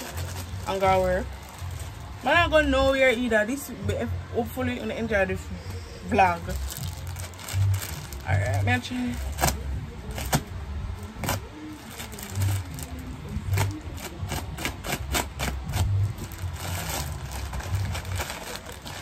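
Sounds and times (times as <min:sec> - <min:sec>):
package clicks and scrapes: 0:11.2 - 0:19.0.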